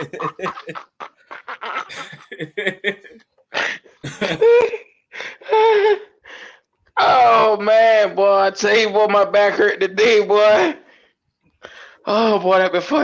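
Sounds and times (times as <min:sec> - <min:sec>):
men laughing hard: 0:00.0 - 0:06.0.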